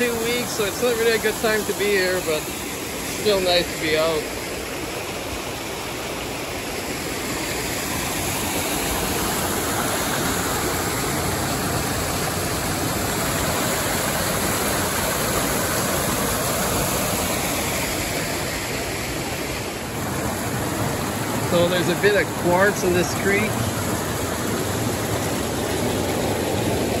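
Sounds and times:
creek rushing over rocks: 0.0s - 27.0s.

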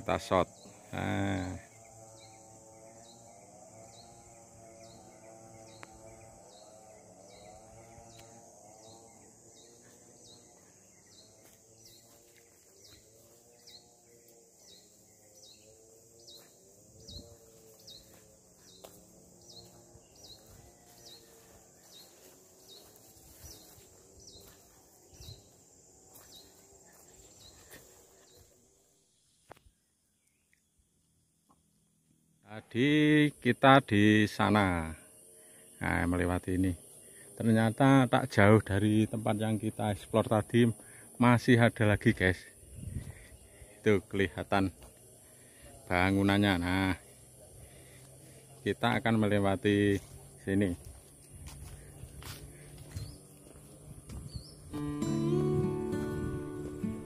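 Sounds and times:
insect chirping: 0.0s - 57.0s
high even trill: 54.8s - 57.0s.

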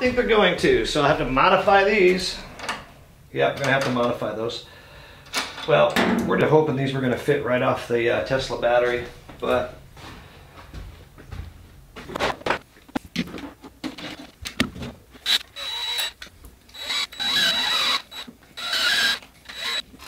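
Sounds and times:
cables and tools clicking: 13.0s - 20.0s
cordless drill whining: 15.2s - 20.0s.

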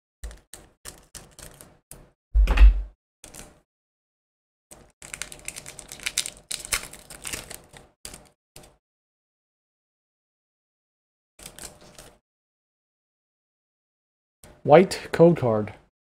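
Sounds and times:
foil wrapper crinkling and tearing: 4.8s - 8.4s, 11.4s - 12.1s.

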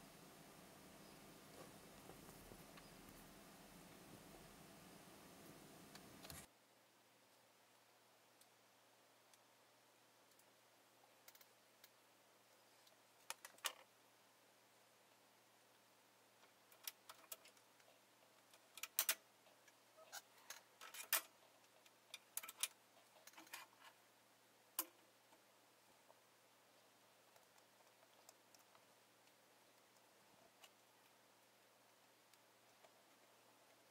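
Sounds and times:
small clicks and ticks: 9.2s - 9.5s, 10.1s - 13.9s, 15.7s - 24.0s, 24.7s - 33.9s.

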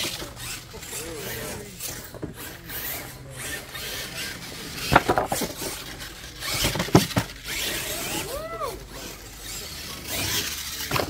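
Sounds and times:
toy truck scrabbling over dirt: 0.0s - 11.0s
toy truck hitting wooden ramps: 3.7s - 8.3s, 10.0s - 11.0s.

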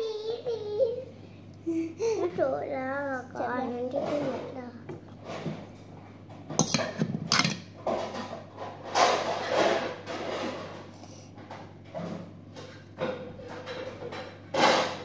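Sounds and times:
dishes clattering: 6.3s - 10.9s, 11.5s - 15.0s.

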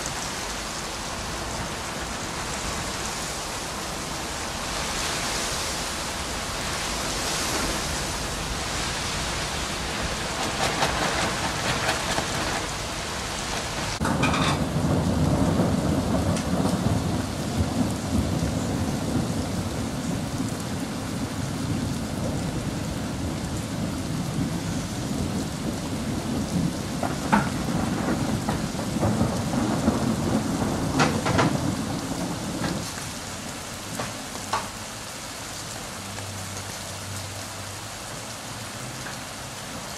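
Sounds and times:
steady rain hiss: 0.0s - 39.9s
deep rumble of thunder: 7.4s - 34.1s.

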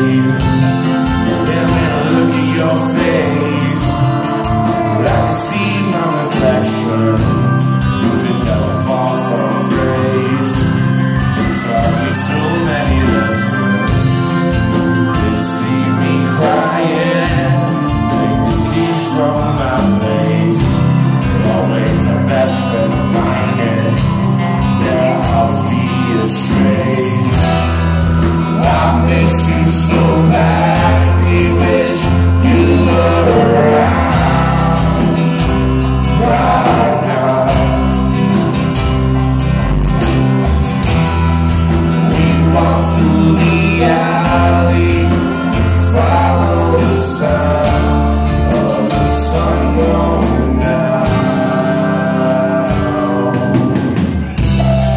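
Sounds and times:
man singing: 0.0s - 39.2s, 41.7s - 54.9s
live band playing: 0.0s - 54.9s
pulsing bass line: 0.0s - 54.9s.

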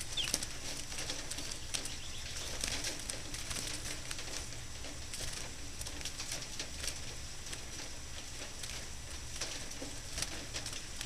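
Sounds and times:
sparrows chirping: 0.0s - 3.9s
ticks of birds shuffling: 0.0s - 11.0s.

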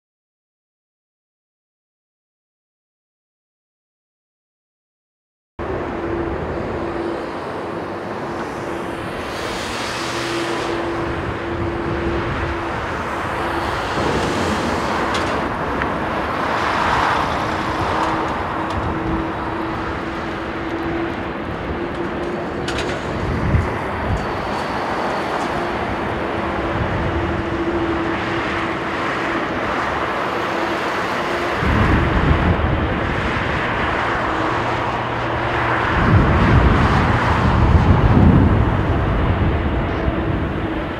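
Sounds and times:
low rumble: 5.6s - 28.1s, 31.6s - 40.9s
jet engines whining: 5.6s - 40.9s
wind on microphone: 5.6s - 40.9s.

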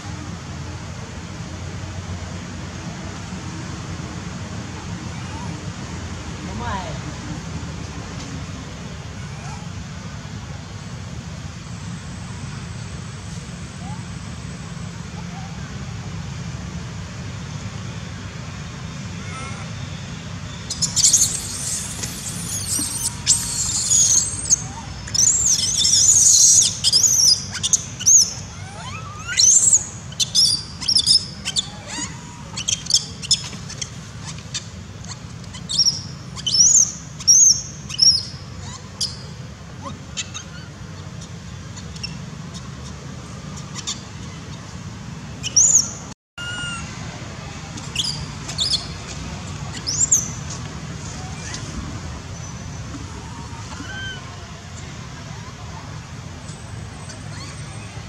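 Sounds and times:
steady low hum: 0.0s - 58.0s
monkey squealing: 19.2s - 19.8s, 20.6s - 44.6s, 45.4s - 47.0s, 47.9s - 49.0s, 49.7s - 50.5s, 51.2s - 51.8s, 53.2s - 54.4s, 56.9s - 58.0s.

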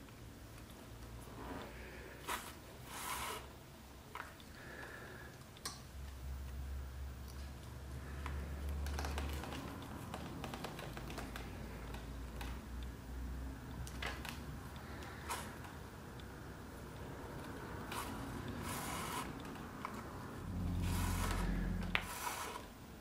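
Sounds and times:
leather stitching clicks and pulls: 8.8s - 12.6s.

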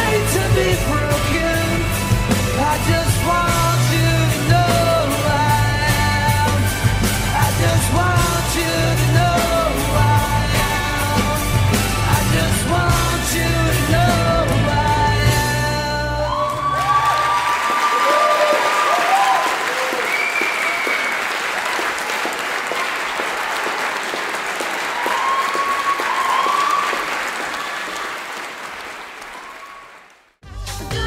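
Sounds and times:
music: 0.0s - 17.5s, 30.4s - 31.0s
audience applauding: 15.8s - 30.4s
people cheering: 15.8s - 30.4s.

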